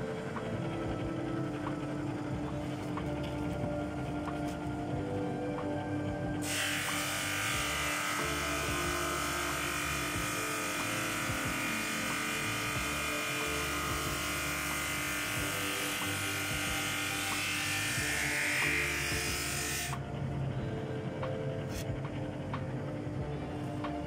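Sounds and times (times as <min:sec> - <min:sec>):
sander motor hum: 0:00.0 - 0:20.8.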